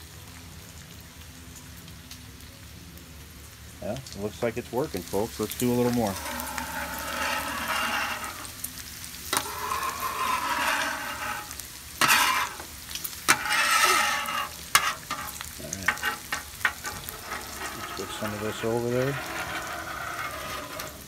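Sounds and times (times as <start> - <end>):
bacon sizzling on a griddle: 0.0 - 21.0
scraper scraping a metal griddle: 5.4 - 21.0.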